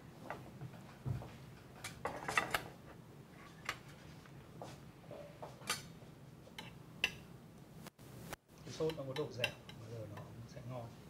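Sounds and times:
faint room hum: 0.0s - 11.0s.

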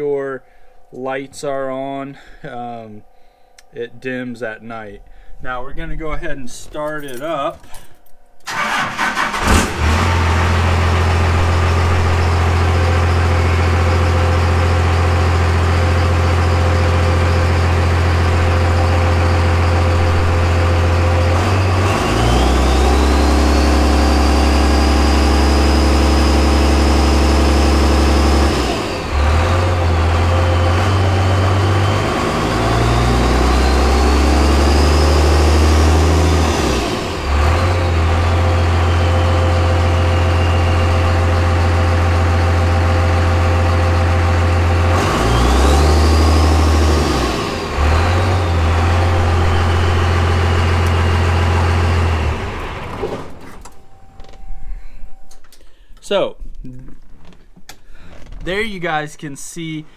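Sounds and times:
high whine: 0.0s - 56.1s
diesel engine running: 8.5s - 54.5s.

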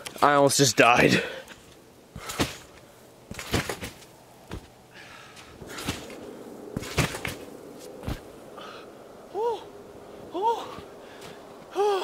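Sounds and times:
trampoline bounce thuds: 2.1s - 4.8s, 5.4s - 8.3s.

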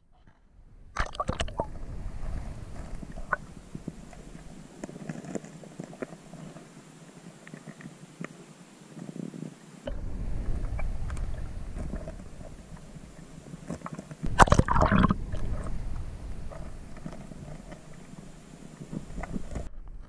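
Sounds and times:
muffled underwater river rumble: 0.5s - 8.1s, 9.8s - 20.0s
water splashing: 0.9s - 6.8s, 9.9s - 19.7s
small underwater clicks: 1.0s - 20.0s.

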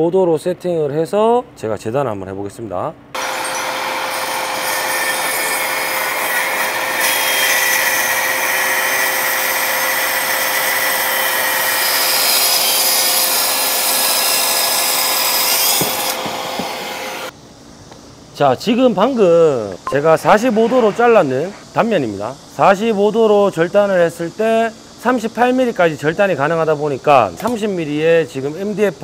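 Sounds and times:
plunge saw cutting wood: 3.2s - 17.3s, 20.3s - 21.8s.

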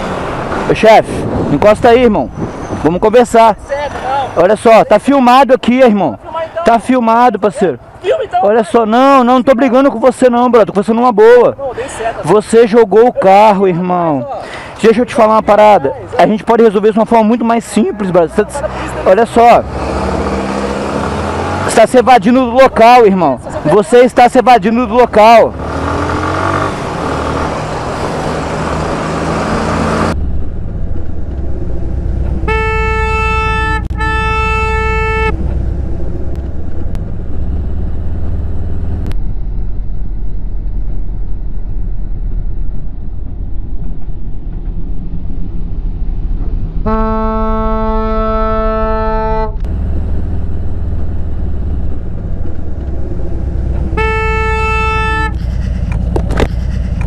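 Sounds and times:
wind noise: 0.0s - 4.4s, 35.2s - 49.0s
vehicle horn honking: 32.4s - 35.4s, 46.9s - 49.6s, 53.9s - 55.5s.

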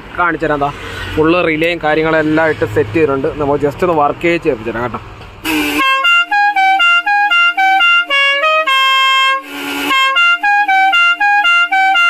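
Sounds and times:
harsh noisy horn blast: 5.4s - 12.0s
musical air horn tune: 5.4s - 12.0s.

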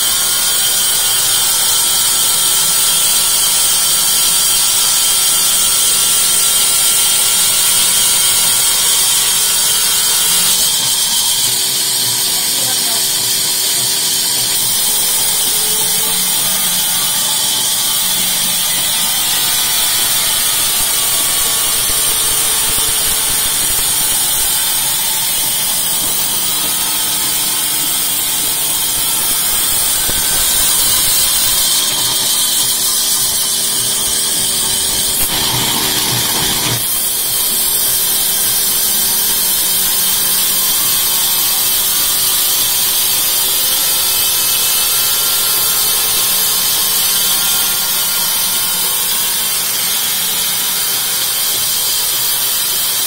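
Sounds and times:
band saw blade cutting wood: 0.0s - 53.0s
machine motor humming: 15.5s - 32.2s.

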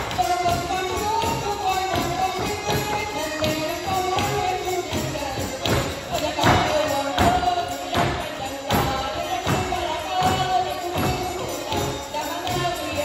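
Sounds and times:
live folk band music: 0.0s - 13.0s.

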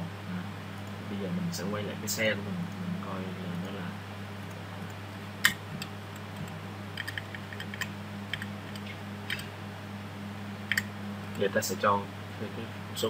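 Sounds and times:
low electrical hum: 0.0s - 13.0s
computer mouse clicks: 5.4s - 9.5s, 10.7s - 11.4s.

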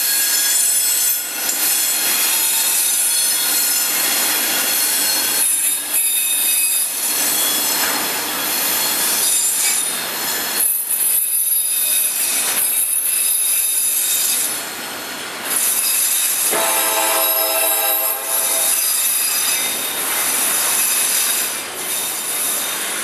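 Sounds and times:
low steady horn chord: 16.5s - 18.8s.

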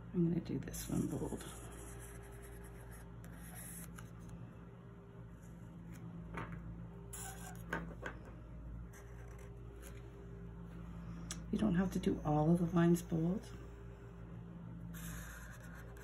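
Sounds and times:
steady low hum: 0.0s - 16.0s
marker scratching on paper: 0.9s - 4.2s, 7.1s - 7.7s, 8.9s - 10.0s, 14.9s - 16.0s.

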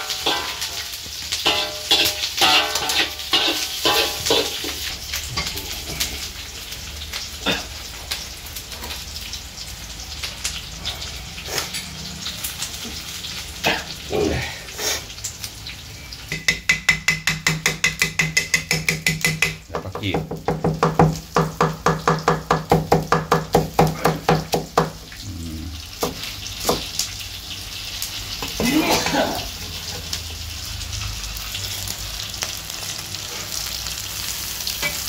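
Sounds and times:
charcoal crackling: 0.0s - 16.4s.

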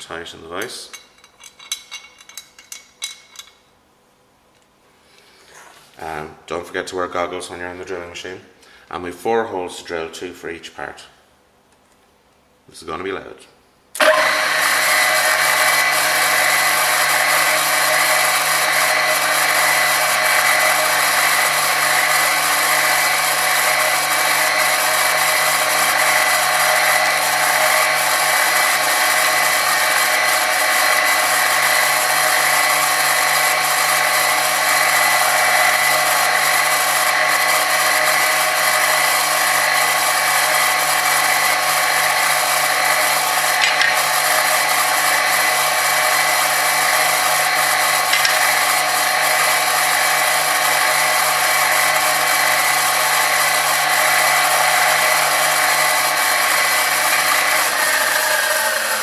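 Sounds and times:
pillar drill whining and humming: 14.0s - 59.0s.

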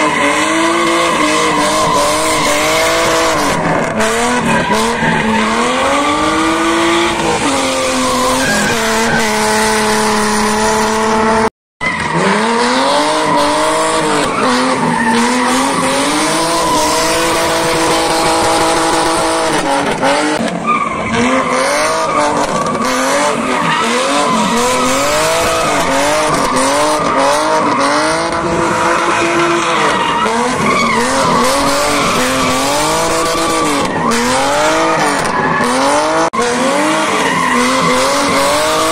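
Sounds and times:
car engine revving: 0.0s - 38.9s
tyres squealing on asphalt: 0.0s - 38.9s.

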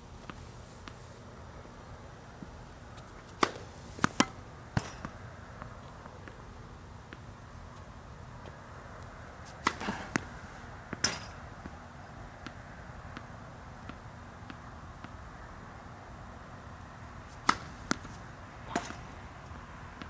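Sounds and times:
tennis ball hitting racket and court: 2.4s - 15.3s, 17.1s - 20.0s.

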